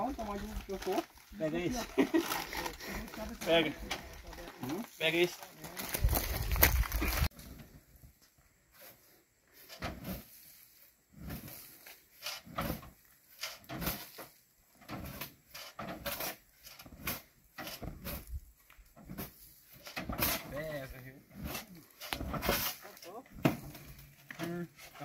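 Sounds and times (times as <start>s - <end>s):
shovel scraping steel truck bed: 8.8s - 18.4s, 19.0s - 25.0s.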